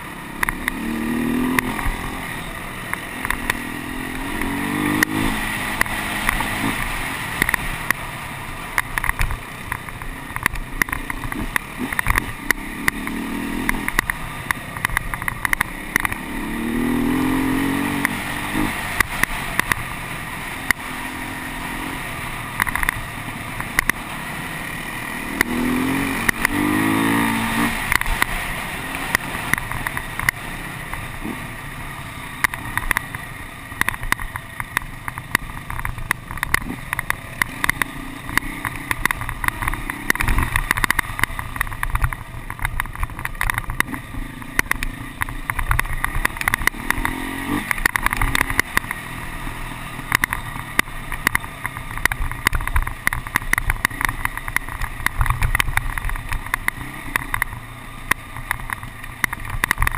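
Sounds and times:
motorcycle engine revving: 0.0s - 59.9s
bike knocks and rattles: 8.7s - 16.3s, 32.4s - 49.2s, 50.0s - 59.9s.

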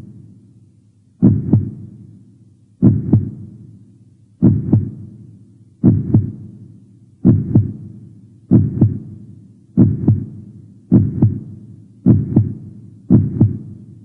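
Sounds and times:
heartbeat: 1.2s - 1.9s, 2.8s - 3.5s, 4.4s - 5.0s, 5.8s - 6.4s, 7.2s - 7.9s, 8.5s - 9.1s, 9.8s - 13.8s.

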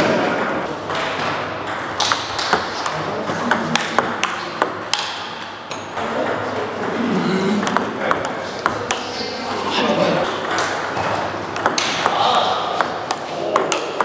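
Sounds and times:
distant table tennis clicks: 0.5s - 6.6s, 10.3s - 14.0s
table tennis ball clicking: 11.6s - 12.2s.

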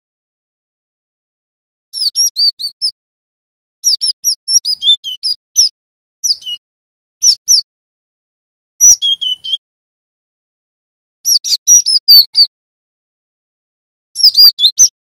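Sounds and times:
bird whistling short high notes: 2.0s - 3.0s, 3.8s - 6.6s, 7.2s - 7.6s, 8.8s - 9.6s, 11.3s - 12.5s, 14.2s - 15.0s.

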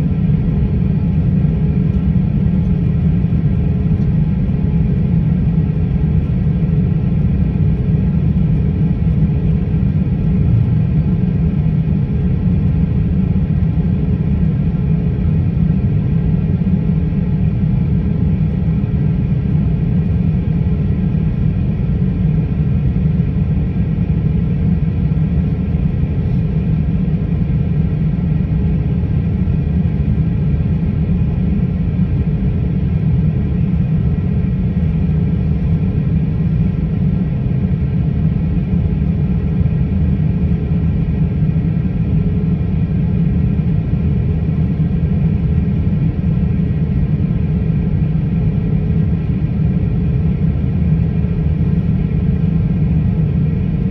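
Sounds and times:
faint steady hums: 0.0s - 53.9s
jet engines idling low rumble: 0.0s - 53.9s.

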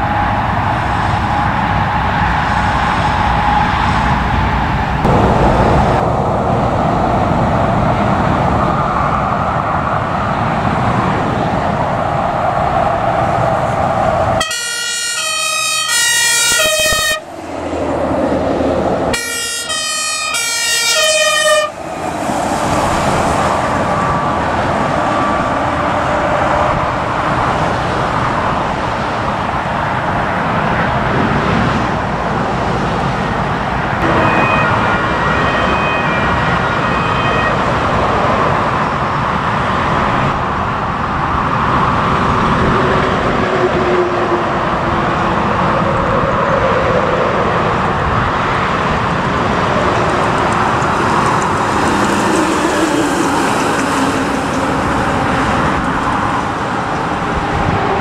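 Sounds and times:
truck engines passing: 0.0s - 58.0s
fire engine two-tone siren: 13.6s - 17.5s, 19.0s - 27.0s, 34.0s - 38.7s.

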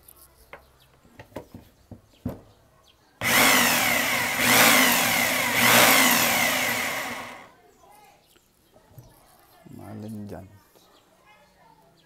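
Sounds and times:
electric drill whining: 3.2s - 7.5s.

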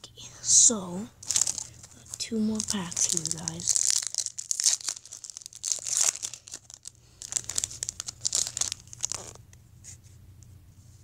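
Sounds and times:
foil wrapper crinkling and tearing: 1.2s - 9.4s.

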